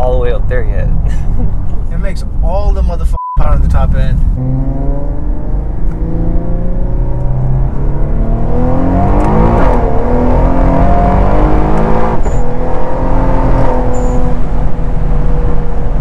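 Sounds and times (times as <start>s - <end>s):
car engine pulling hard from inside cabin: 3.6s - 16.0s.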